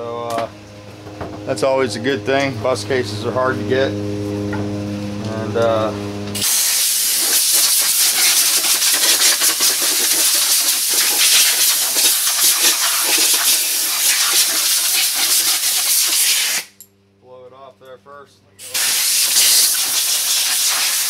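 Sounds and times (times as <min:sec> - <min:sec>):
compressed air blow gun hissing: 0:06.4 - 0:16.7, 0:18.7 - 0:21.0.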